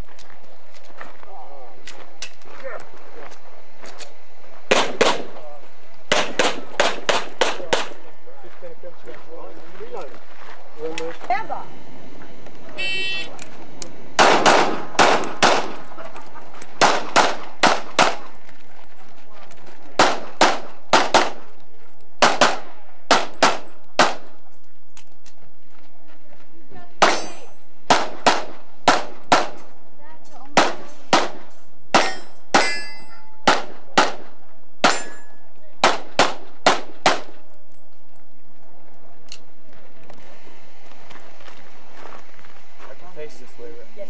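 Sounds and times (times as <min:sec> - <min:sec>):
handgun shots: 0:04.7 - 0:05.3, 0:06.1 - 0:08.0, 0:14.2 - 0:15.8, 0:16.8 - 0:18.3, 0:20.0 - 0:21.4, 0:22.2 - 0:24.3, 0:27.0 - 0:29.6, 0:30.6 - 0:32.8, 0:33.4 - 0:37.4
steel target ringing: 0:27.0 - 0:27.6, 0:32.0 - 0:33.6, 0:34.8 - 0:35.5.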